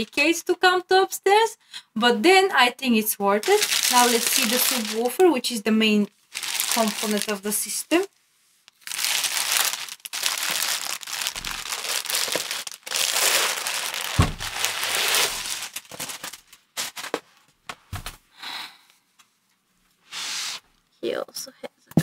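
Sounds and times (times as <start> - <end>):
plastic bag rustling: 3.4 - 5.5, 6.3 - 8.1, 8.7 - 17.3
dull thump: 14.1 - 14.7.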